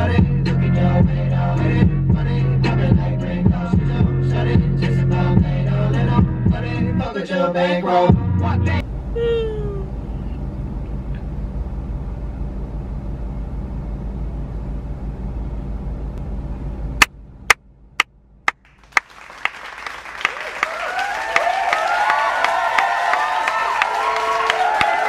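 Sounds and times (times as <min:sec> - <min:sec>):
bass-heavy music: 0:00.0 - 0:10.0
sharp claps: 0:18.5 - 0:25.0
crowd applauding and cheering: 0:18.7 - 0:25.0.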